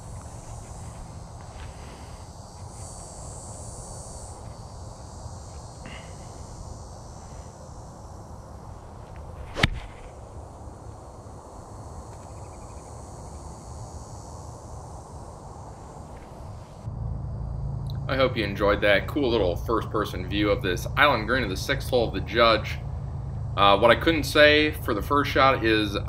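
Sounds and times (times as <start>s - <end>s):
golf club striking ball: 9.5s - 10.1s.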